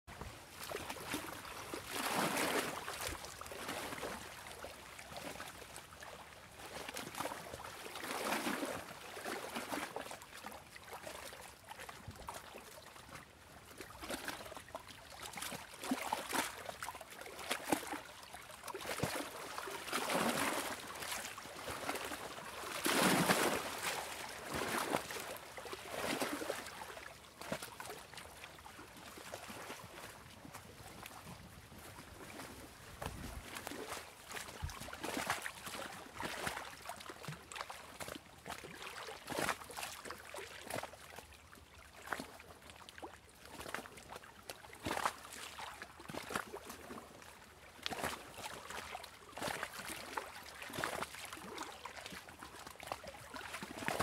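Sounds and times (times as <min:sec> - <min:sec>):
small waves washing onto shore: 0:00.1 - 0:42.4.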